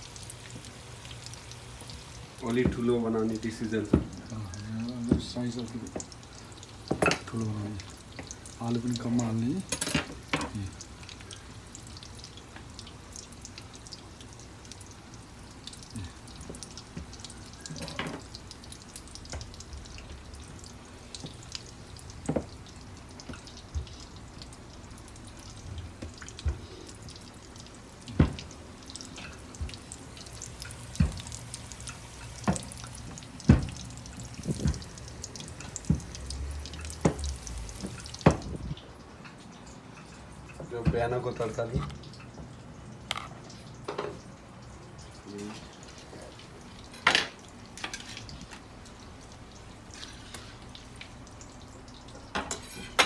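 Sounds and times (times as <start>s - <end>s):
hands knocking on kitchen counter: 33.5s - 33.8s.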